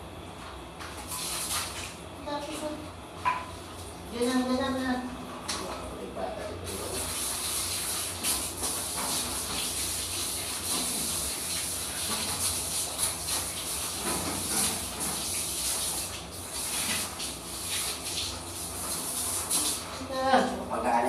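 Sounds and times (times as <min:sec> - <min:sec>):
shower spray splashing: 0:01.0 - 0:02.0, 0:06.6 - 0:20.6.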